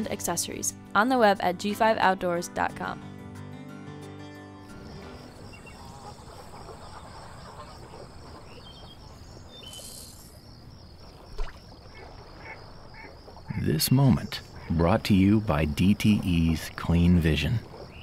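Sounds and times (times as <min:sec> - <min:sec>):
insects chirping: 0:04.2 - 0:18.0
short bird calls: 0:05.6 - 0:10.4.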